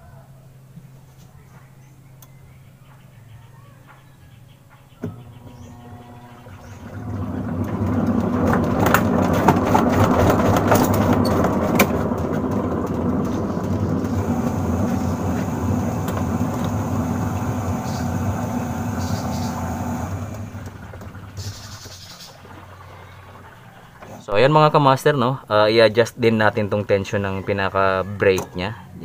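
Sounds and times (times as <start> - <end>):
washing machine motor humming: 5.0 - 25.7
clicks and rattles: 6.8 - 22.0.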